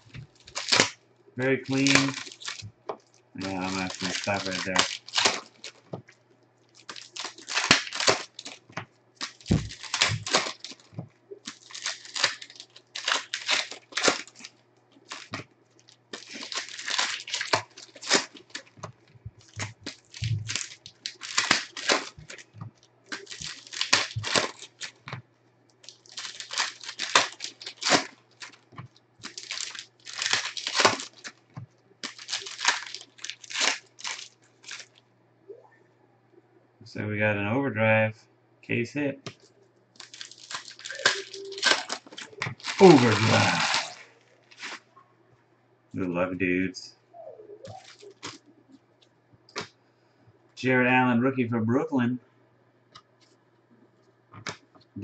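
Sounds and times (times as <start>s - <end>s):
foil packs crinkling and tearing: 0.0s - 2.8s, 3.4s - 6.0s, 6.7s - 18.8s, 19.4s - 25.2s, 25.8s - 31.4s, 32.0s - 35.0s, 40.0s - 44.9s, 47.7s - 48.4s.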